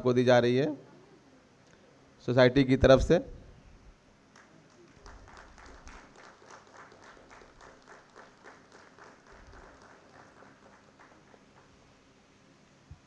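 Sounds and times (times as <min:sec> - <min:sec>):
hands clapping: 0:04.3 - 0:12.0.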